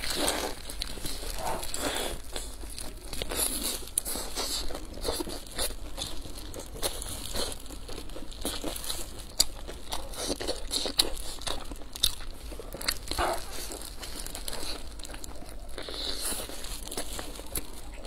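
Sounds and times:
crunching of crisp flatbread: 0:00.0 - 0:18.0
plastic gloves crinkling: 0:00.0 - 0:18.0.

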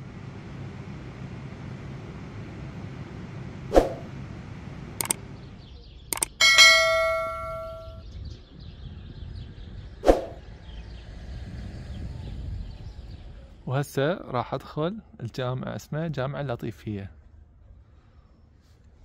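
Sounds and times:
short clicks: 0:05.0 - 0:05.2, 0:06.1 - 0:07.5
bright bell-like ding: 0:06.3 - 0:08.0.

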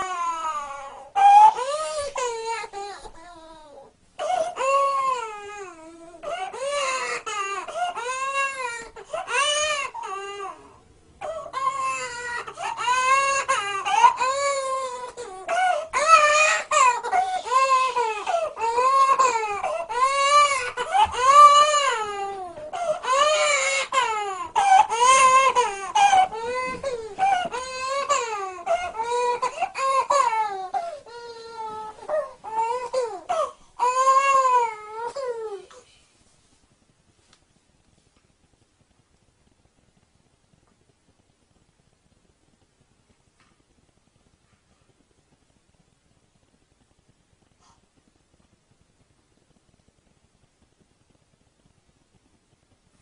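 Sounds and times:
toddler crying: 0:00.0 - 0:35.7.

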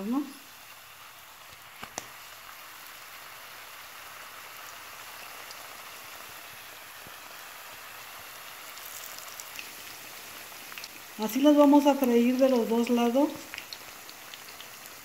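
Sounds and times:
oil sizzling in a skillet: 0:00.0 - 0:15.0
faint oil pops: 0:01.5 - 0:02.2.

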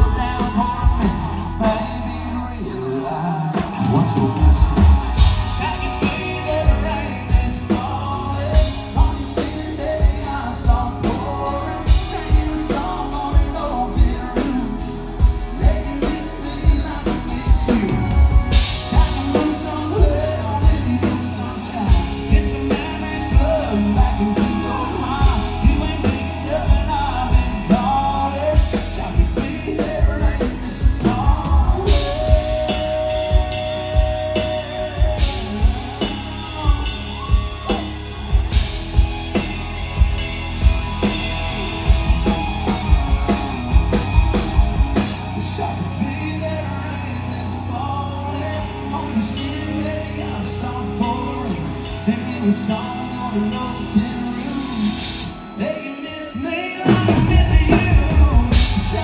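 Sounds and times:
drum kit beat: 0:00.0 - 0:02.0, 0:03.5 - 0:45.4, 0:56.8 - 0:59.0
man singing into microphone: 0:00.0 - 0:38.6, 0:45.3 - 0:59.0
live country band playing: 0:00.0 - 0:59.0.

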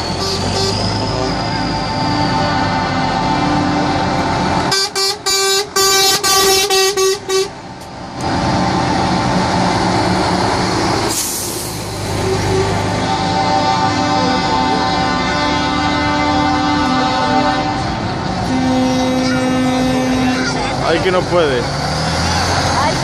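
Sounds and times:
short horn toots: 0:00.0 - 0:03.9, 0:12.2 - 0:20.8
truck air horns blaring: 0:00.0 - 0:23.0
brief hiss: 0:11.1 - 0:11.9.

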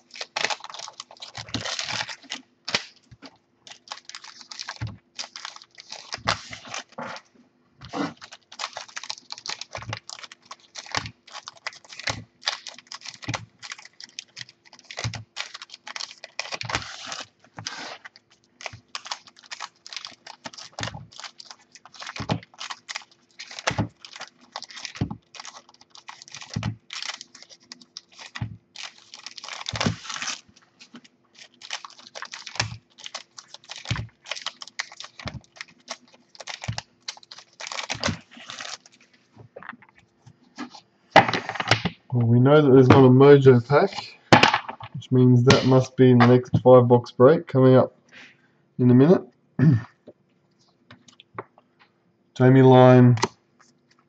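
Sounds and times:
foil wrapper crinkling: 0:00.0 - 0:39.9
cards rustling: 0:00.0 - 0:40.0.

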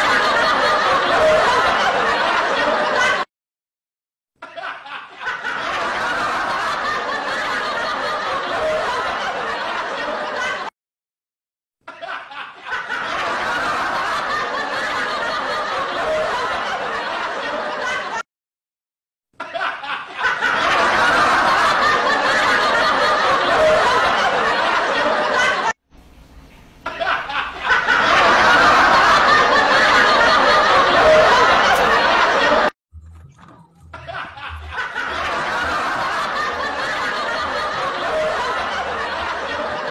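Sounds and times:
non-speech human vocal sounds: 0:33.2 - 0:34.7.

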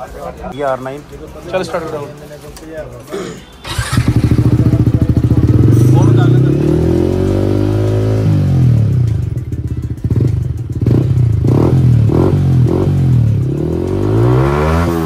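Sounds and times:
motorcycle engine revving: 0:03.6 - 0:15.0.

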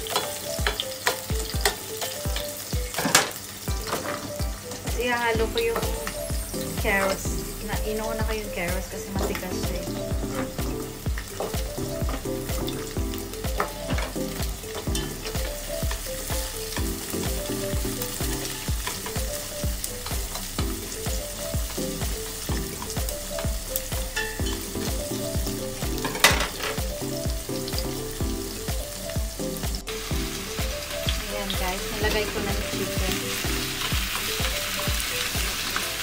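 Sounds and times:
background music with steady beat: 0:00.0 - 0:36.0
vegetables sizzling in a pot: 0:00.0 - 0:36.0
chopsticks stirring: 0:03.7 - 0:36.0.

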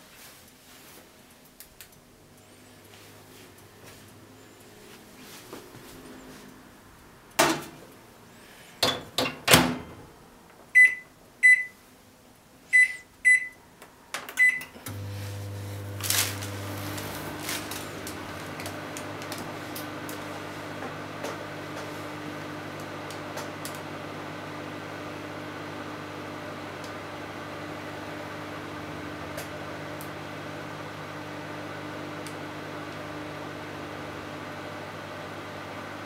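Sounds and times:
microwave door clunking shut: 0:08.8 - 0:10.0
microwave key beeps: 0:10.8 - 0:11.8, 0:12.8 - 0:13.6, 0:14.4 - 0:14.7
microwave humming: 0:14.4 - 0:36.0.

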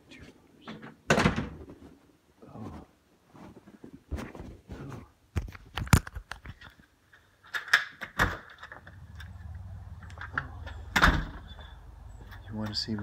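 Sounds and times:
phone being handled: 0:05.4 - 0:11.0
steady low hum: 0:08.8 - 0:13.0.

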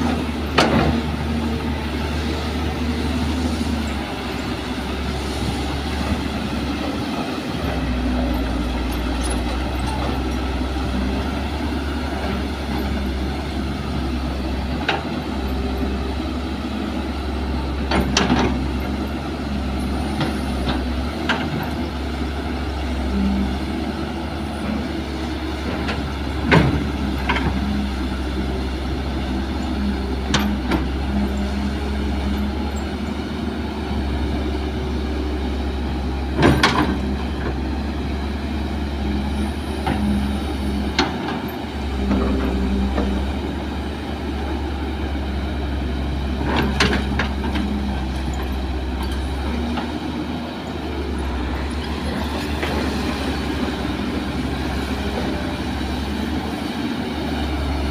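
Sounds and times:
excavator diesel engine running: 0:00.0 - 0:57.9.

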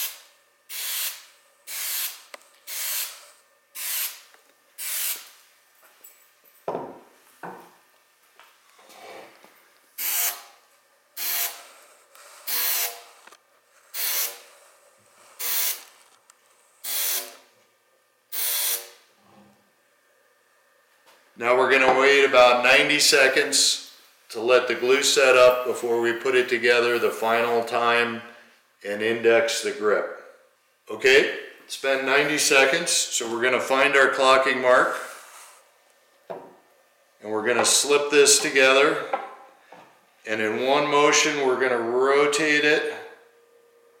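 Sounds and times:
aerosol spray hissing: 0:00.0 - 0:03.2.

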